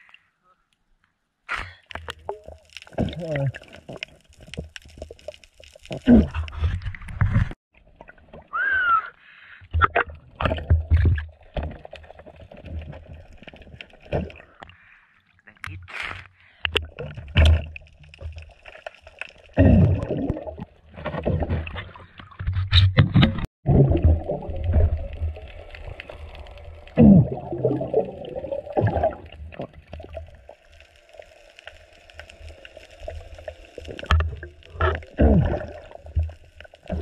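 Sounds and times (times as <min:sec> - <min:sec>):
underwater gurgling and bubbling: 0:19.5 - 0:22.4, 0:23.2 - 0:37.0.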